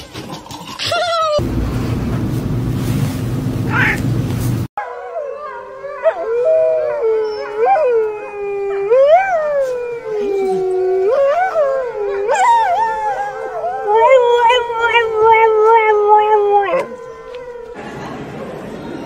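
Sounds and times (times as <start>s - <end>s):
dog howling: 4.8s - 17.8s
wolf howling: 4.8s - 17.8s.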